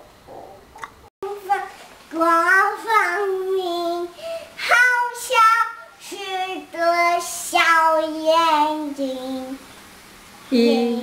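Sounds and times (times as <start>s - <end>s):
toddler girl singing: 1.2s - 9.6s.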